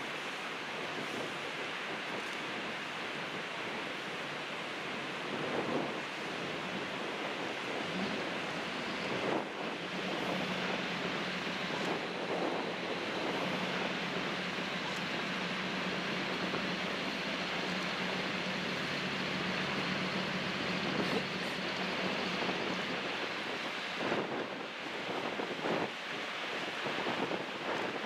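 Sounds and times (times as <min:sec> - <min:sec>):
water rushing: 0:00.0 - 0:28.0
low steady hum: 0:04.0 - 0:24.5.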